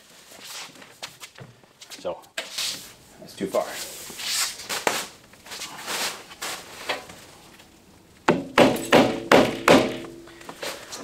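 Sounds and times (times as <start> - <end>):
mallet striking metal frame: 8.3 - 10.4.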